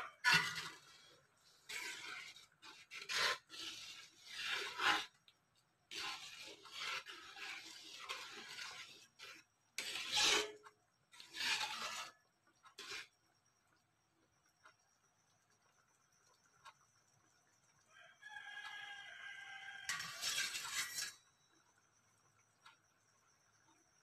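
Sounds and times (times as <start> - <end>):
metal ladle scraping a wok: 0.0 - 5.2, 5.9 - 13.1, 19.9 - 21.4.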